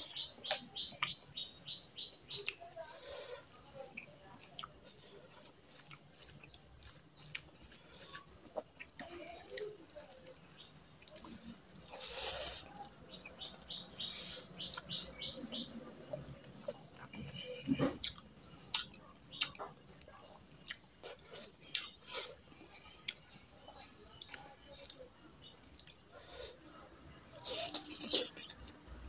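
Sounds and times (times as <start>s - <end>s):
fingers squishing rice: 2.3s - 15.6s
wet chewing and lip smacks: 4.0s - 17.1s, 18.0s - 22.4s, 24.2s - 26.1s.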